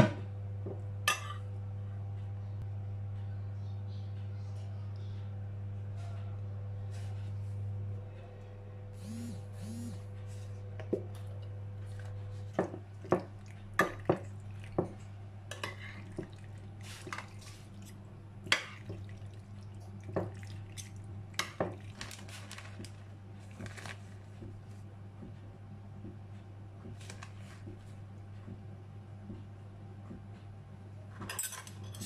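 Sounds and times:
steady low hum: 0:00.0 - 0:32.0
metal utensil clinking on glass dish: 0:31.3 - 0:32.0.

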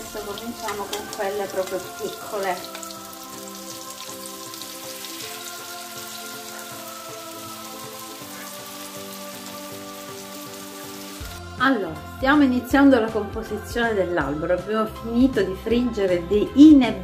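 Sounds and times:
fritters sizzling in oil: 0:00.0 - 0:11.4
soft background music chords: 0:00.0 - 0:17.0.

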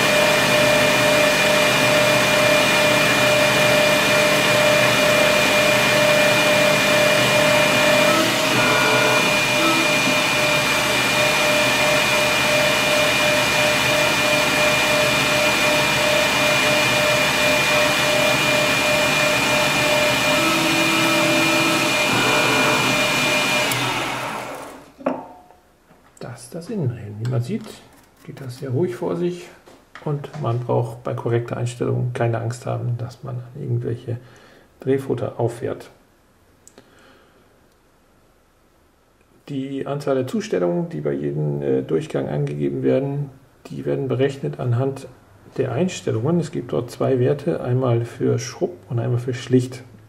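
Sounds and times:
metal lathe motor hum: 0:00.0 - 0:24.8
boring tool cutting metal tube: 0:02.4 - 0:24.5.

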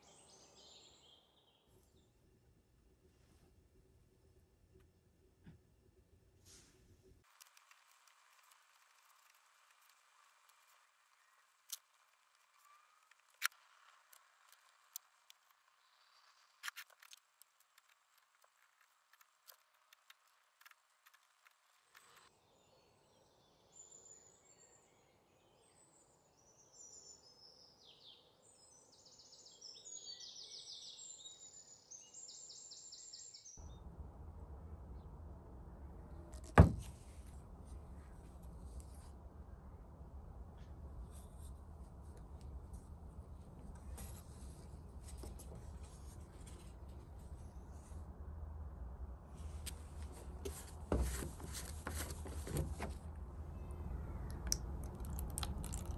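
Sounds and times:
sharp clicks and taps: 0:54.2 - 0:55.9.

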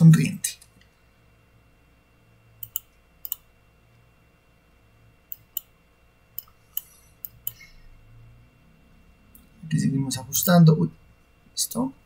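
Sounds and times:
faint electrical hum: 0:00.0 - 0:12.0
computer mouse clicks: 0:02.6 - 0:03.4, 0:05.3 - 0:05.7, 0:06.4 - 0:07.6.

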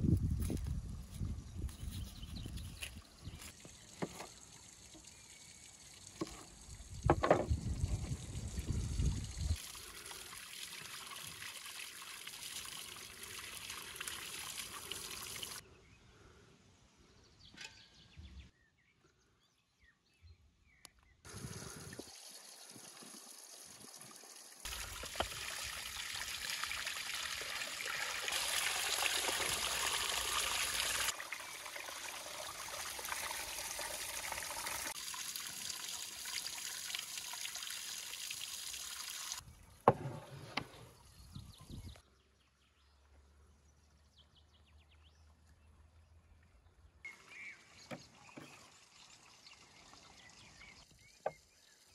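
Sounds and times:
rinsing in running water: 0:03.0 - 0:15.6, 0:21.3 - 0:39.4
water splashing onto rocks: 0:24.7 - 0:31.2.

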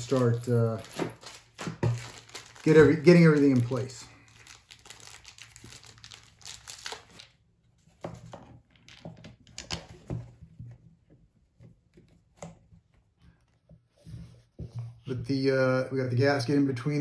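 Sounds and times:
plastic crinkling: 0:00.0 - 0:07.4
plastic parts clicking and knocking: 0:08.2 - 0:10.4.

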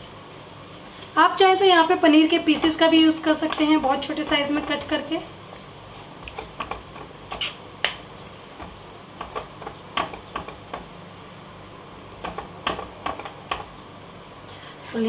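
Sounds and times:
spoon scraping and tapping a pan: 0:03.4 - 0:05.0, 0:06.2 - 0:07.6, 0:08.6 - 0:10.9, 0:12.2 - 0:13.7.

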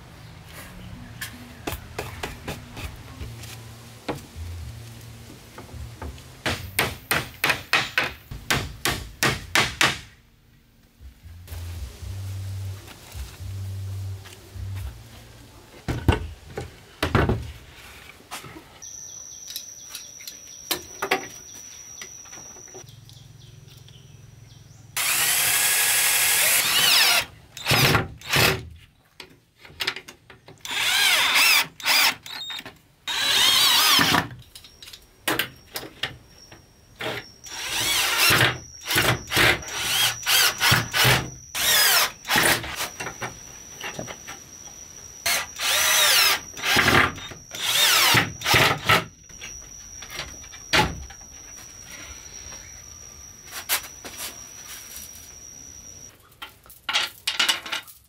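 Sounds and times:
power tool working wood: 0:25.0 - 0:27.8, 0:37.5 - 0:54.5.

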